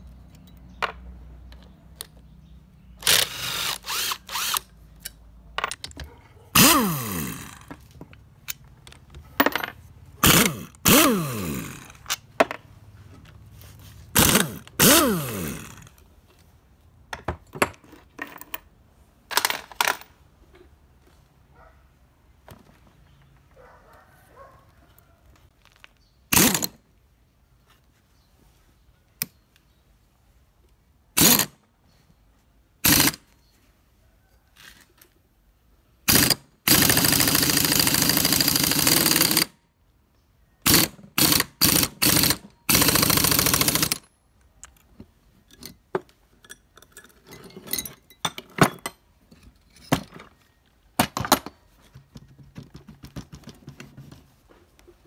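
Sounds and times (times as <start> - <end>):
pneumatic impact wrench hammering: 3.0 - 4.7, 6.6 - 7.7, 10.2 - 12.2, 14.1 - 16.0, 26.3 - 26.8, 31.2 - 31.6, 32.8 - 33.3, 36.1 - 39.6, 40.6 - 44.1
metal tools clinking on wood: 5.0 - 6.4, 7.3 - 10.5, 17.1 - 20.7, 43.5 - 52.0.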